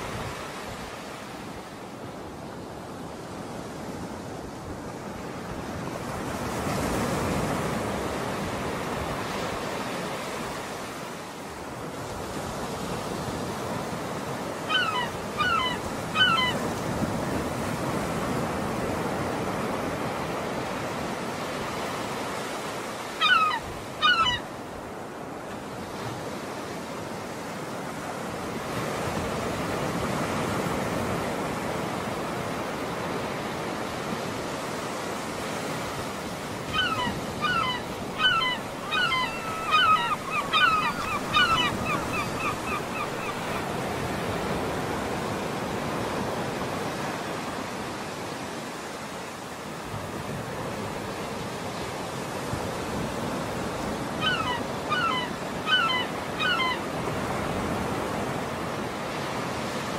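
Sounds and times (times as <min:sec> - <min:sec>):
waves washing on shore: 0:00.0 - 0:59.9
bird honking calls: 0:14.7 - 0:16.6, 0:23.2 - 0:24.4, 0:36.7 - 0:43.6, 0:54.2 - 0:56.8.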